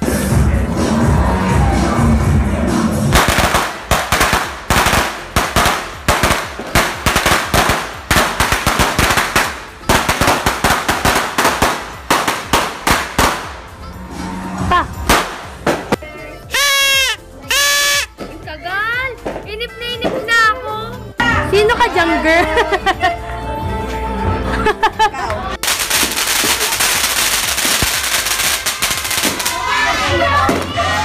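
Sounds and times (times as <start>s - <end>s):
firecrackers popping: 3.1s - 13.7s, 15.0s - 16.0s, 25.6s - 29.7s.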